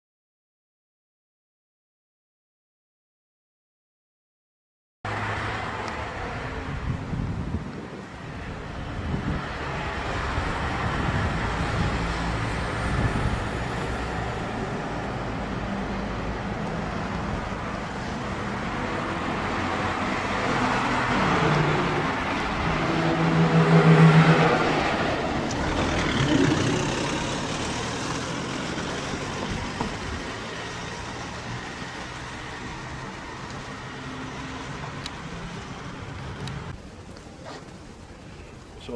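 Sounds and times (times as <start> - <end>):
road traffic: 5.0 - 38.9
car engine passing: 9.1 - 36.7.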